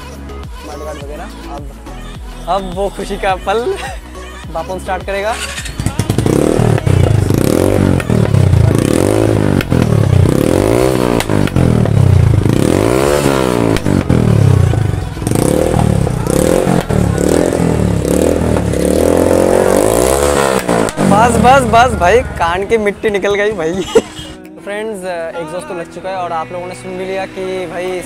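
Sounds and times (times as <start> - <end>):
motorcycle engine revving: 4.8 - 23.6.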